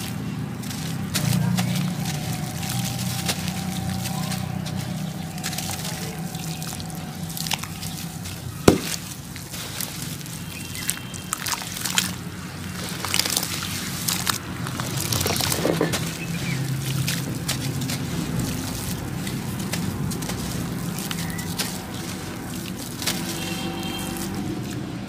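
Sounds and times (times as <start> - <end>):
small crackles: 0.0 - 25.0
water sloshing and dripping: 0.0 - 25.0
lumps broken by hand under water: 8.6 - 9.2.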